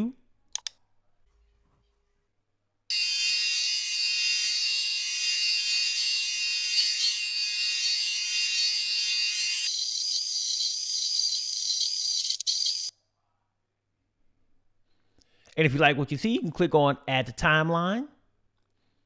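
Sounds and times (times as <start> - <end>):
insects chirring: 9.7 - 12.9.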